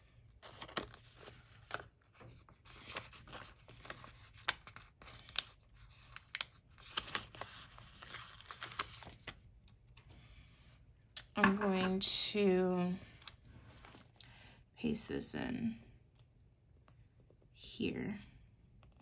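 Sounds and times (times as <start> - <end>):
paper sticker sheet rustling: 0.4 - 10.0.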